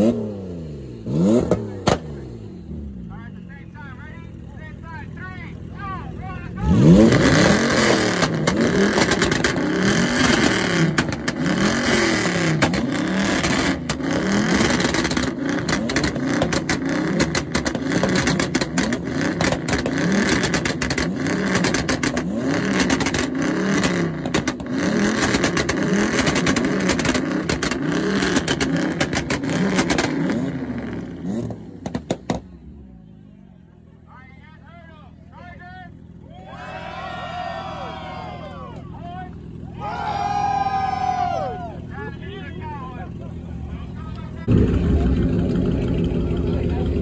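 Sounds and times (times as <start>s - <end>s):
car engine revving: 0.0s - 34.4s, 37.1s - 47.0s
exhaust crackles and pops: 7.1s - 32.5s.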